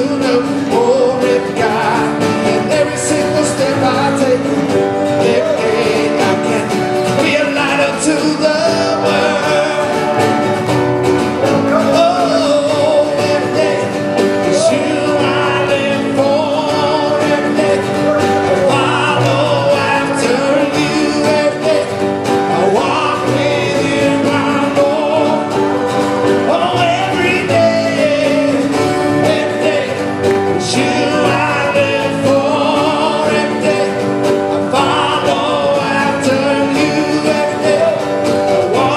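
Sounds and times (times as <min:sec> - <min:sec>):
man and woman singing: 0:00.0 - 0:10.6, 0:11.6 - 0:38.9
drums: 0:00.0 - 0:38.9
electric guitar: 0:00.0 - 0:38.9
keyboard: 0:00.0 - 0:38.9.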